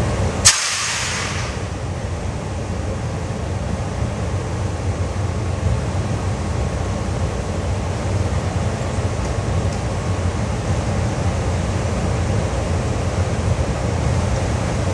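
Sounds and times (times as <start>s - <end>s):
even hiss: 0.5s - 1.7s
locomotive equipment low rumble: 1.1s - 14.9s.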